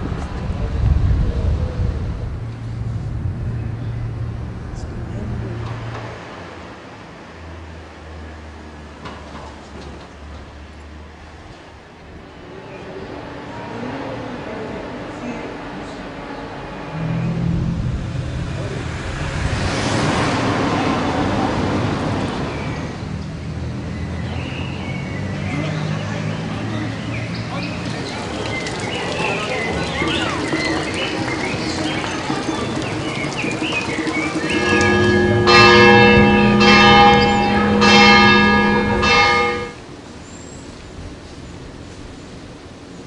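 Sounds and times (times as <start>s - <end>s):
vehicle passing by: 0.0s - 9.0s, 15.5s - 39.8s
church bell ringing: 33.9s - 39.8s.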